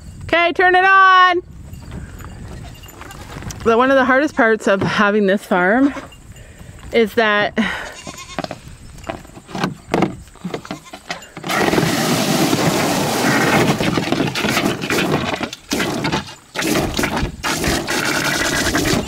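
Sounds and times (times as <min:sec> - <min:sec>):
hose water splashing into plastic pool: 0:11.5 - 0:14.0.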